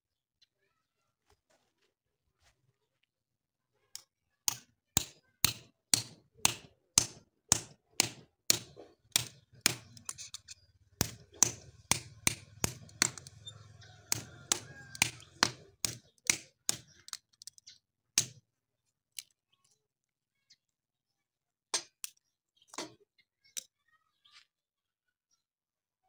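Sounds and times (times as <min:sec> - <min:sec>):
metal tool knocking on wood: 0:05.0 - 0:17.0.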